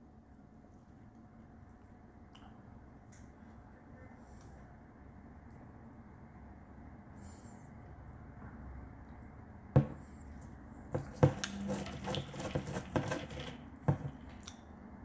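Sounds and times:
sharp knocks on hard surface: 9.8s - 10.0s, 11.0s - 14.3s.

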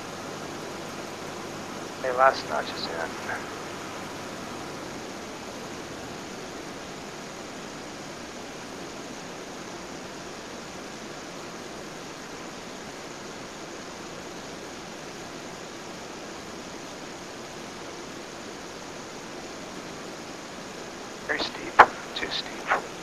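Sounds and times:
aircraft engine drone: 0.0s - 23.0s
airflow rushing over aircraft cabin: 21.3s - 23.0s.

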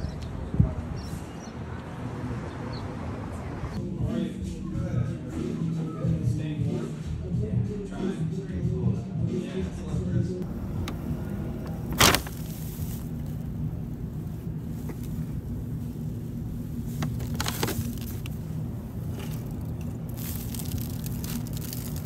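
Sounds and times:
street traffic rumble: 0.0s - 3.9s, 10.4s - 22.0s
paper bag crinkling: 10.4s - 22.0s.

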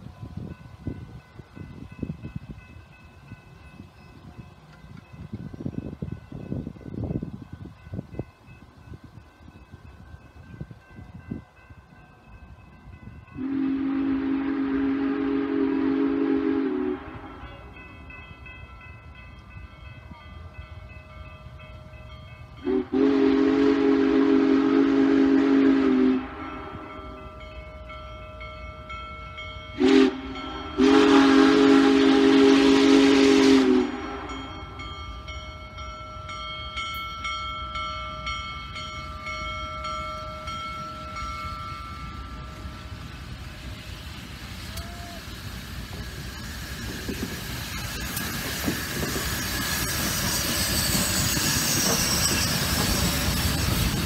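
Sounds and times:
locomotive bell ringing: 0.0s - 54.0s
chime steam whistle blowing: 12.7s - 54.0s.

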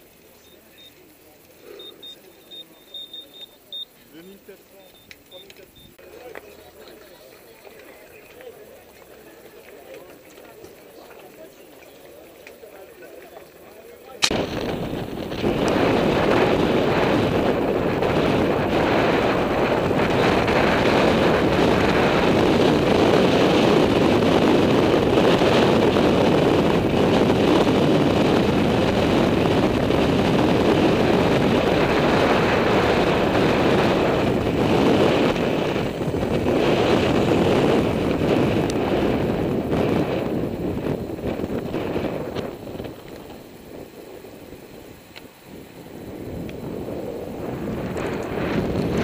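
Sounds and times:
wind buffeting microphone: 14.2s - 49.0s.

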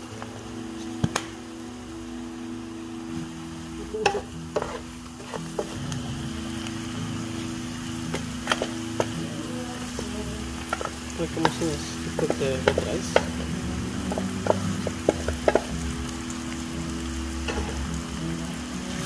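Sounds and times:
vegetables sizzling in frying pan: 0.0s - 19.0s
spatula knocking and scraping pan: 4.0s - 5.8s, 10.7s - 13.5s, 14.1s - 15.8s, 17.4s - 17.8s.

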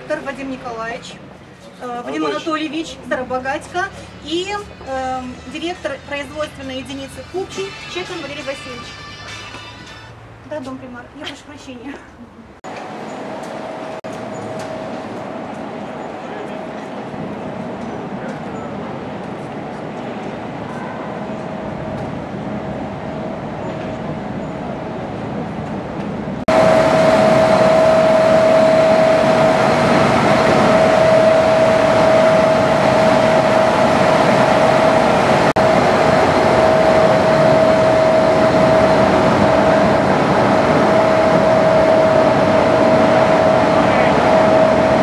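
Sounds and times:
constant high hum: 0.0s - 45.0s
factory machinery noise: 12.7s - 45.0s.

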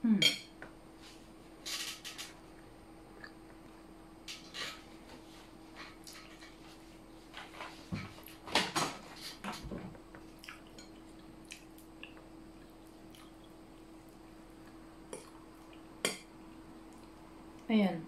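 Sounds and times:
steady low hum: 0.0s - 18.0s
chewing sticky rice: 10.2s - 17.7s.

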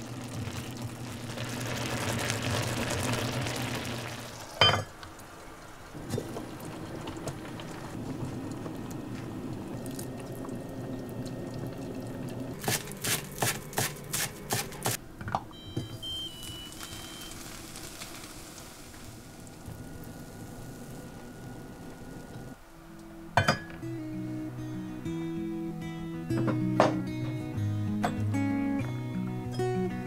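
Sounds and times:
soup bubbling in a pot: 0.0s - 12.6s, 16.0s - 22.6s
pot lid clink: 4.6s - 4.9s, 23.4s - 23.8s.

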